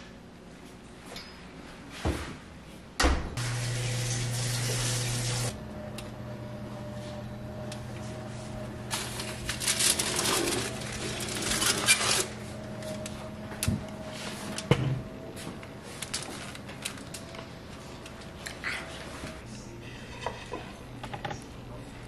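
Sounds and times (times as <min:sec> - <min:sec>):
low hum: 0:03.4 - 0:18.7
foil rustling: 0:08.9 - 0:13.1, 0:15.8 - 0:18.3.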